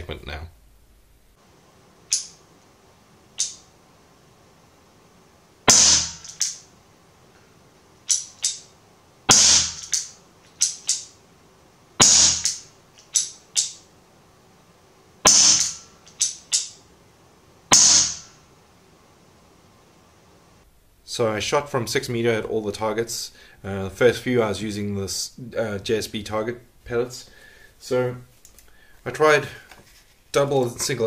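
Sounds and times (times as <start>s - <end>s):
air revolver shots: 5.7s - 6.7s, 9.3s - 11.2s, 12.0s - 13.8s, 15.2s - 16.8s, 17.7s - 18.4s
quiet clicks: 28.4s - 28.8s.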